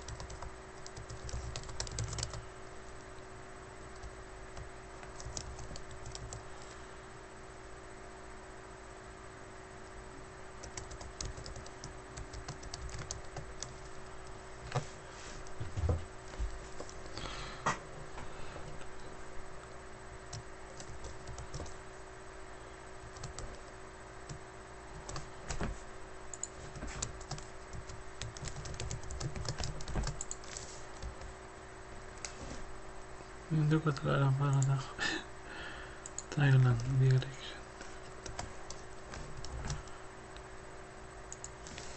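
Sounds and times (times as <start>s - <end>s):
typing on computer keyboard: 0.0s - 2.4s, 4.0s - 6.4s, 10.6s - 13.9s, 20.3s - 21.8s, 23.1s - 23.5s, 26.3s - 31.3s, 38.2s - 39.8s.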